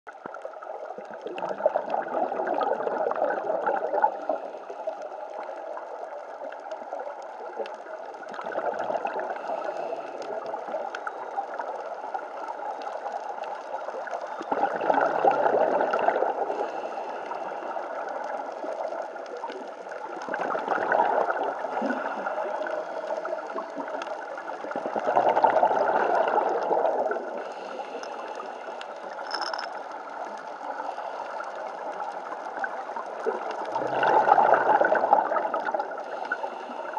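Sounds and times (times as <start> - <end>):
regulator bubbles gurgling: 0.1 - 36.9
underwater hiss: 8.4 - 14.2, 15.5 - 19.4, 20.0 - 24.7, 25.3 - 36.9.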